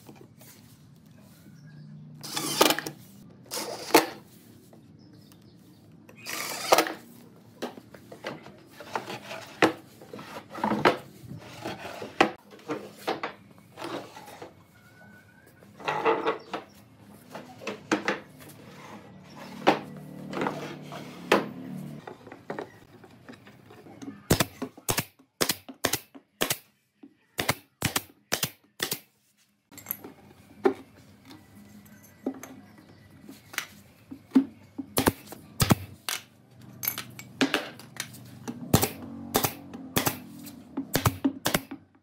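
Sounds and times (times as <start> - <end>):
wooden frame scraping: 7.8 - 14.8, 15.7 - 23.4.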